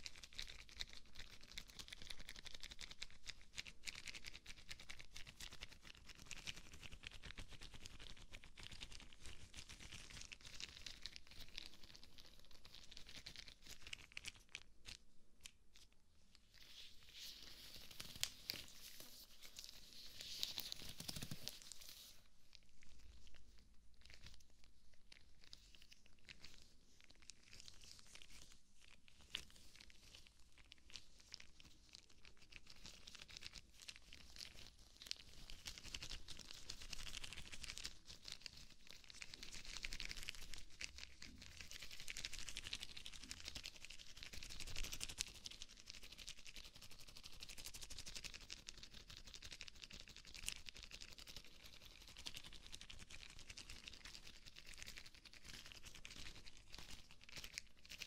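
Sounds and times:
rubber gloves crinkling: 8.4 - 41.5.

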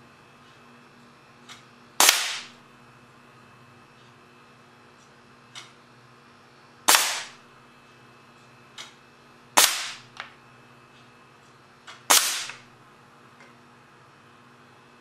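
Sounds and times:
air cannon shots: 2.0 - 2.5, 6.9 - 7.4, 9.6 - 10.1, 12.1 - 12.6.

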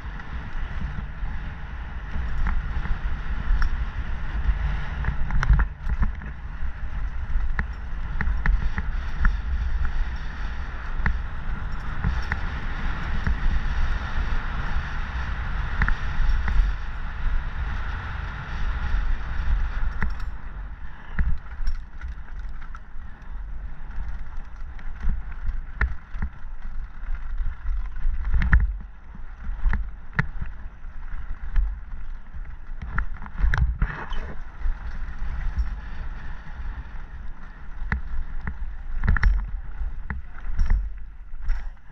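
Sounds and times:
bike rattling over bumps: 0.0 - 41.9
bike tyres rumbling on dirt: 0.0 - 41.9.

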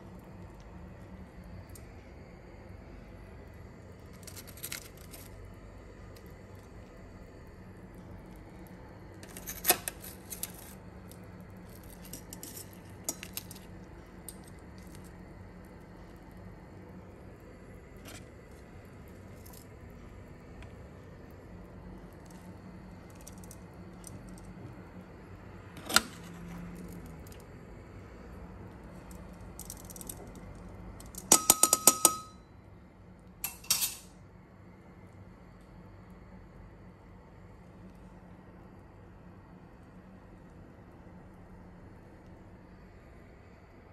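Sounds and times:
steady low hum: 0.0 - 43.9
metal tongs clinking: 31.0 - 32.4, 33.4 - 34.1
kitchen utensils clinking: 33.5 - 34.1.

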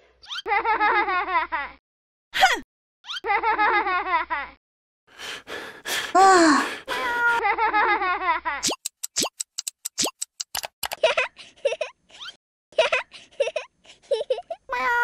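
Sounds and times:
high-pitched cartoon giggling: 3.1 - 4.6, 10.9 - 15.0
gasp: 5.2 - 7.4.

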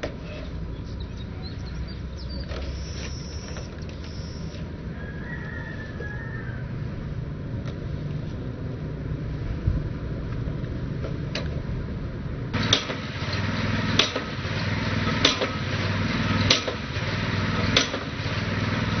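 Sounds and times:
single-cylinder engine running: 0.0 - 19.0
drive weight striking casing: 12.5 - 19.0.

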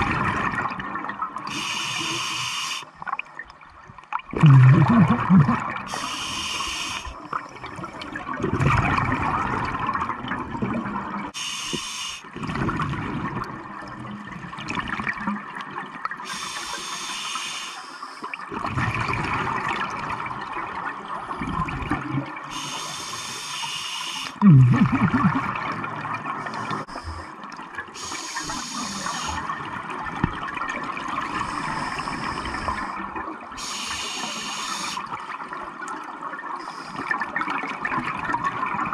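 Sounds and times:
underwater bubbling on exhale: 0.0 - 2.2, 2.9 - 11.4, 12.3 - 16.4, 18.3 - 22.8, 24.2 - 38.9
regulator hiss on inhale: 1.5 - 2.9, 5.9 - 7.3, 11.4 - 12.3, 16.2 - 18.3, 22.5 - 24.4, 26.4 - 27.3, 28.0 - 29.5, 31.3 - 33.0, 33.6 - 35.3, 36.6 - 37.1.

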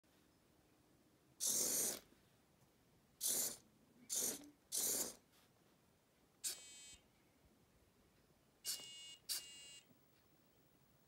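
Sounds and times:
small electric motors whirring: 1.4 - 2.0, 3.2 - 5.2.

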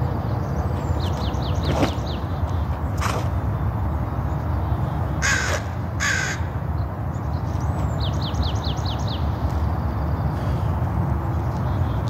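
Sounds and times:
crow cawing: 5.2 - 6.5.

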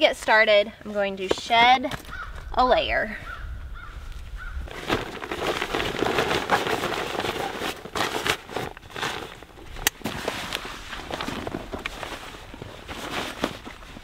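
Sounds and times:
wind rumble on microphone: 2.0 - 7.0
backpack fabric rustling: 3.8 - 14.0.

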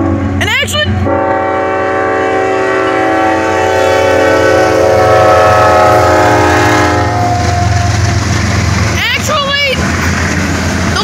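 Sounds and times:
locomotive and wheels rumbling: 0.0 - 11.0
locomotive air horn blast: 1.0 - 7.8.

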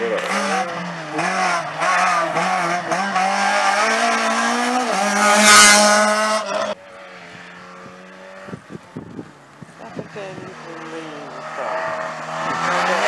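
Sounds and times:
race car engine revving: 0.0 - 9.2, 9.8 - 13.0
distant car engine: 0.0 - 13.0.

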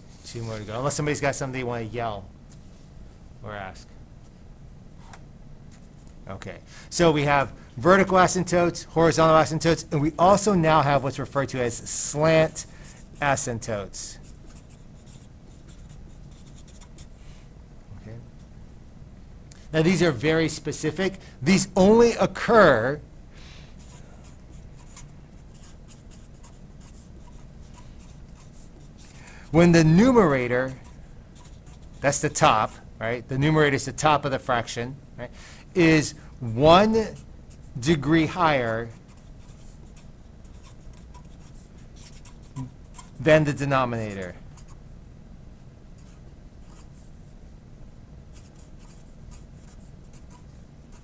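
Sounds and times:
low steady hum: 0.0 - 51.0
marker scratching on paper: 11.8 - 13.5, 14.2 - 17.4, 23.7 - 32.8, 36.8 - 44.8, 46.0 - 47.2, 48.3 - 51.0.

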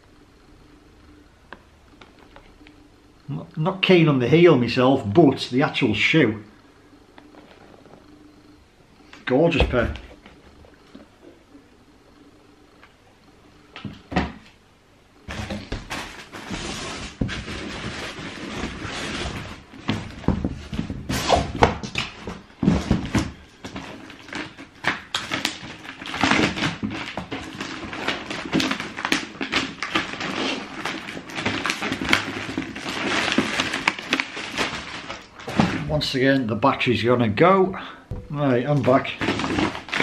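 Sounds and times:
boxes knocking and clicking: 19.8 - 24.0.

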